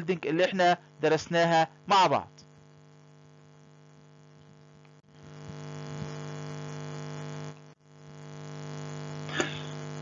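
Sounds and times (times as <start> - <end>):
electrical hum: 0.0 - 10.0.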